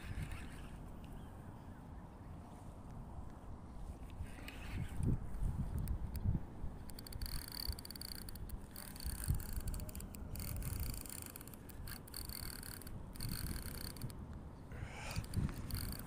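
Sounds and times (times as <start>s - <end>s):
fishing reel whirring and clicking: 0.0s - 1.2s, 4.0s - 14.2s, 14.8s - 16.0s.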